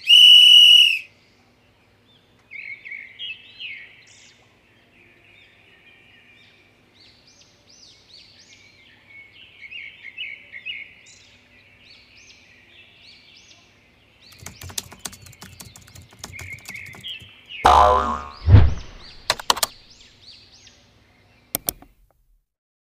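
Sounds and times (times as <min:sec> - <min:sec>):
small birds chirping: 0:11.0 - 0:22.0
rapid clicks: 0:14.3 - 0:17.3, 0:18.6 - 0:19.8
loud deep burst: 0:17.7 - 0:19.3.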